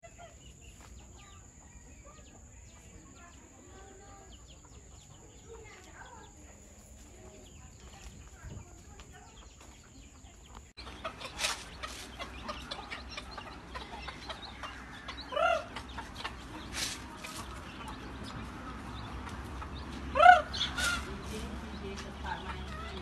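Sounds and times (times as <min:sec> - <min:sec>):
chickens clucking: 0:00.0 - 0:23.0
loud chicken call: 0:14.7 - 0:15.9, 0:20.1 - 0:21.1.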